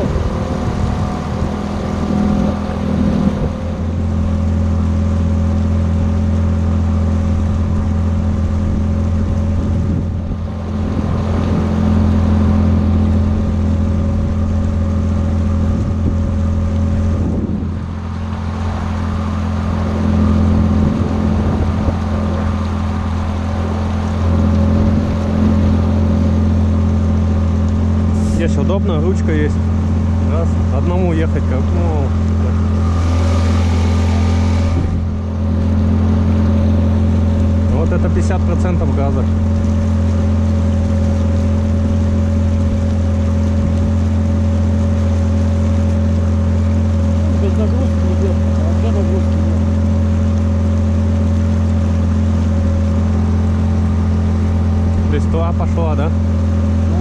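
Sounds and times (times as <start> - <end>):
outboard motor running: 0.0 - 57.0.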